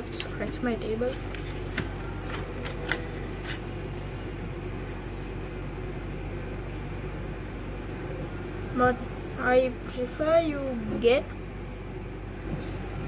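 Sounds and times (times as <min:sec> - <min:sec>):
paper rustling: 0:00.0 - 0:03.7
low room hum: 0:00.0 - 0:13.0.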